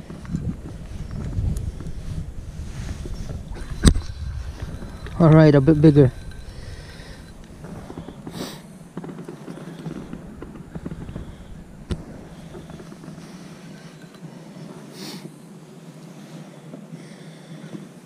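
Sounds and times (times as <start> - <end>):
crackly handling rustle: 0.0 - 17.0.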